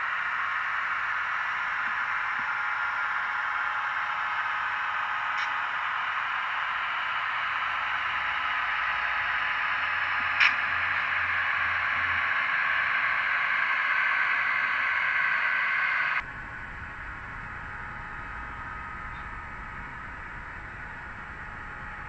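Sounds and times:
model train wheels hissing: 0:03.6 - 0:16.2
single click: 0:10.4 - 0:10.6.

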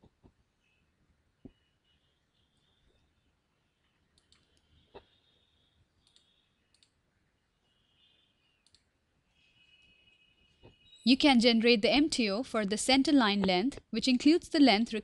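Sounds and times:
computer mouse clicks: 0:04.1 - 0:05.1, 0:06.0 - 0:07.0, 0:08.6 - 0:08.9.

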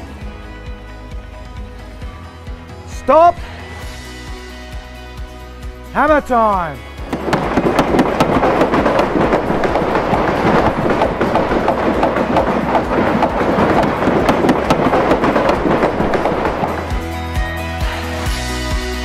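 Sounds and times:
clatter of knocks and bangs: 0:07.0 - 0:17.4.

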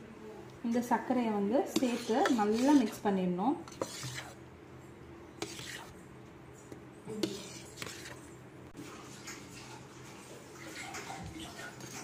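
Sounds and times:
spoon scraping steel bowl: 0:01.7 - 0:03.0, 0:03.6 - 0:04.4, 0:05.4 - 0:06.0, 0:07.2 - 0:08.3.

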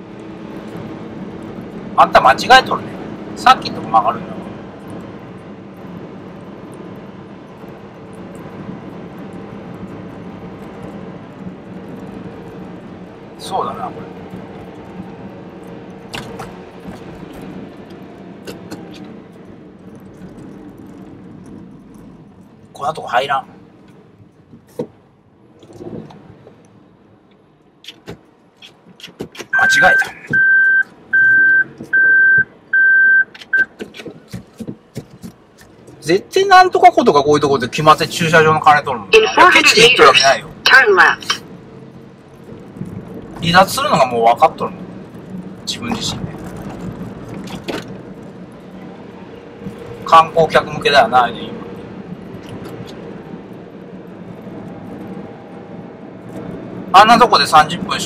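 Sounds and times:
vehicle engine and road noise: 0:00.0 - 0:58.0
car warning beeps: 0:29.5 - 0:33.8.

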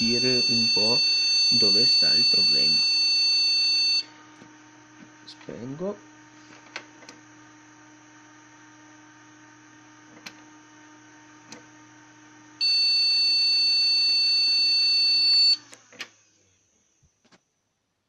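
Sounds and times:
long computer beep: 0:00.0 - 0:04.1, 0:12.6 - 0:15.6
computer humming: 0:00.0 - 0:15.8.

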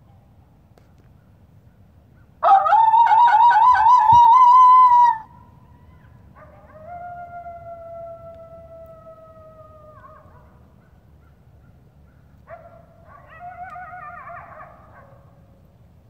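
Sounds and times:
coyote howling back wavering: 0:02.4 - 0:05.4, 0:06.7 - 0:10.4
coyote howling: 0:02.4 - 0:10.6, 0:13.1 - 0:15.1.

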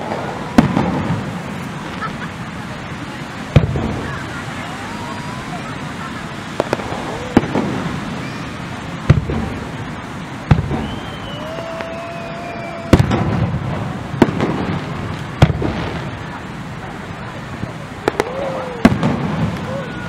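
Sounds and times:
firework shells booming: 0:00.0 - 0:20.0
high firework whistle: 0:03.6 - 0:09.8, 0:10.4 - 0:14.7, 0:18.0 - 0:20.0.

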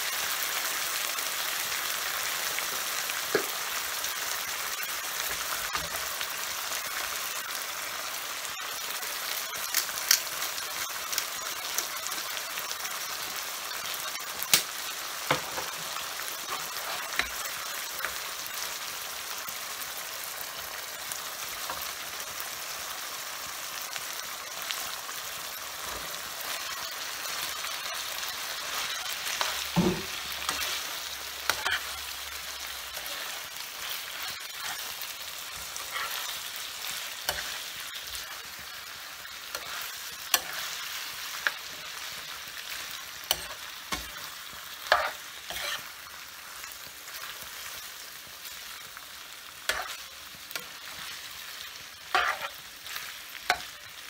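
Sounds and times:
sauce sizzling in a frying pan: 0:00.0 - 0:54.0
metal spoon scraping a pan: 0:16.4 - 0:18.2, 0:28.7 - 0:38.6, 0:39.2 - 0:45.9, 0:49.7 - 0:51.2, 0:52.0 - 0:53.7.

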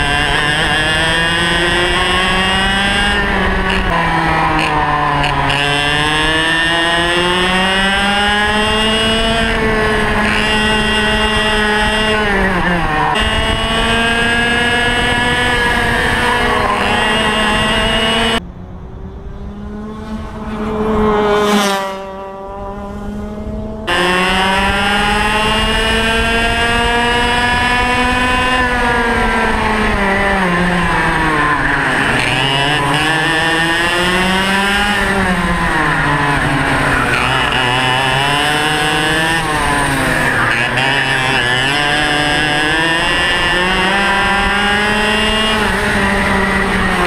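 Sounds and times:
two-stroke kart engine racing: 0:00.0 - 0:47.0.

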